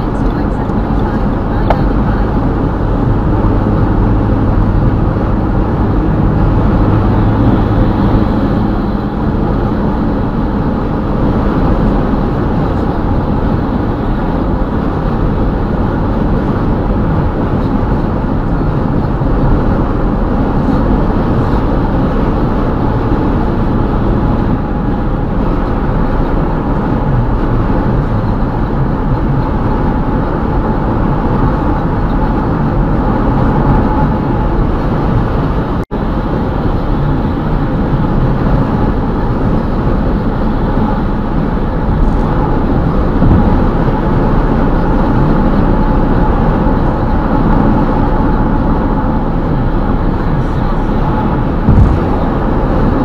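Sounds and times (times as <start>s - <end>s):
car road noise inside cabin: 0.0s - 53.0s
low hum: 0.0s - 53.0s.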